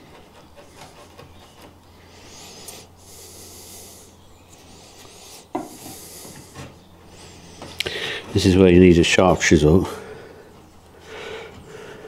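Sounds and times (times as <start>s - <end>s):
chisel scraping wood: 0.0s - 1.8s.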